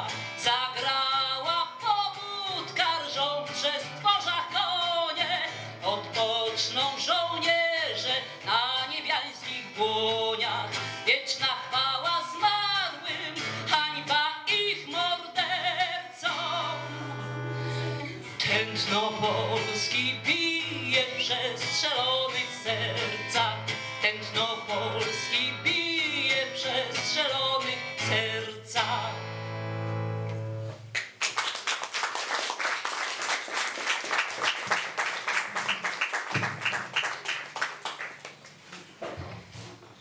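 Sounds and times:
woman singing: 0.0s - 29.1s
acoustic guitar: 0.0s - 31.2s
audience applauding: 30.9s - 38.6s.

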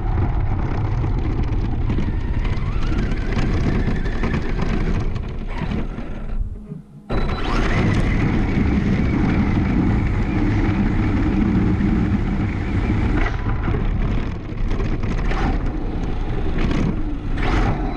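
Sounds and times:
toy truck driving over grass: 0.8s - 6.5s.

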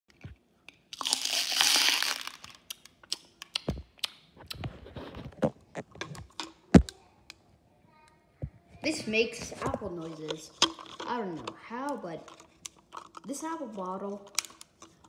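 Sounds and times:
handling clicks and knocks: 5.3s - 7.0s, 9.4s - 13.4s.

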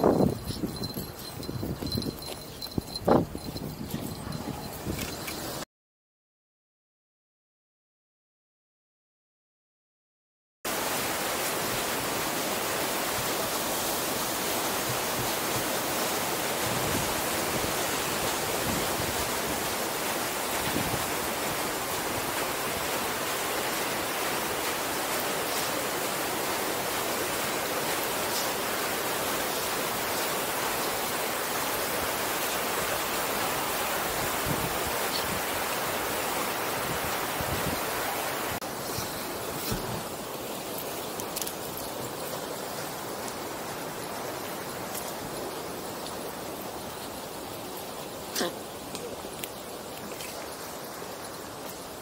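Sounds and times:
running water rushing: 10.7s - 52.0s.

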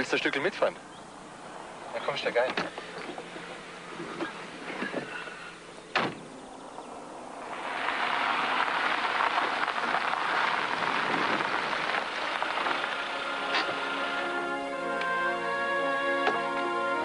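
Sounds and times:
tyres crunching on gravel: 6.2s - 14.9s.

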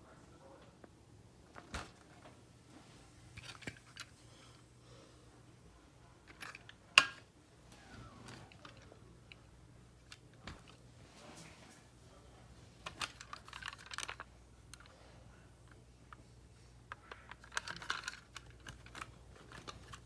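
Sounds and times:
plastic units clicking and knocking: 3.4s - 4.1s, 6.2s - 7.3s, 8.2s - 10.8s, 12.8s - 15.0s, 16.9s - 20.0s.

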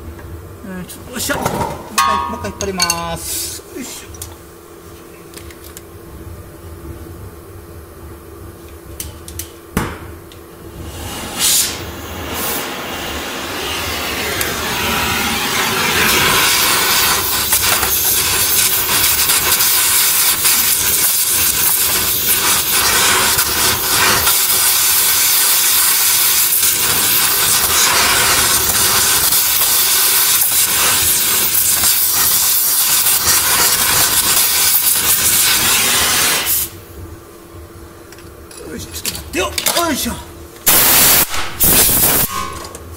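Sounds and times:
gas torch hissing: 3.2s - 4.3s, 10.6s - 36.9s, 39.8s - 42.8s.

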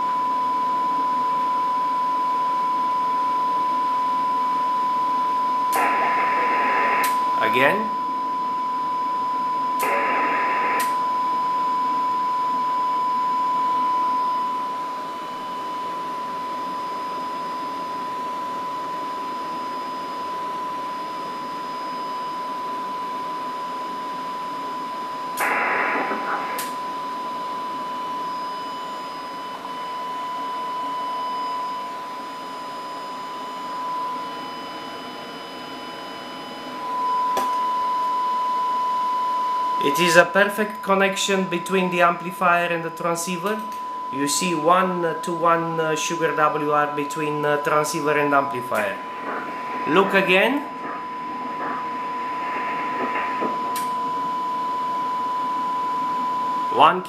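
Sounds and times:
steady test tone: 36.8s - 57.0s.

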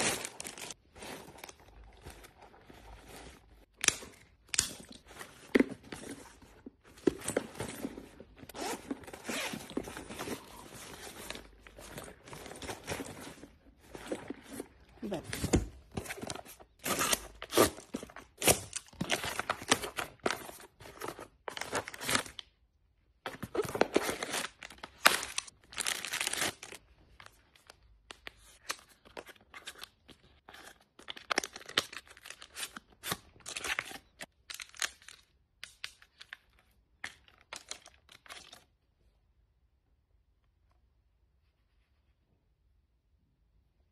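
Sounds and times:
cardboard rustling: 0.0s - 22.4s.

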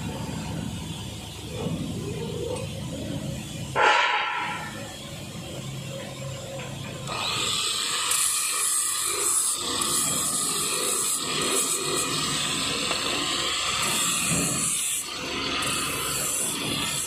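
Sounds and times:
angle grinder motor whine: 7.0s - 17.0s.

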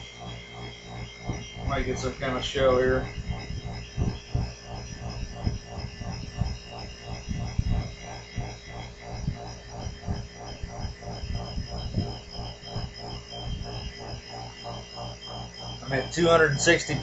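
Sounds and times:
air compressor pulsing hum: 0.0s - 17.0s
low thumps: 1.2s - 14.8s.

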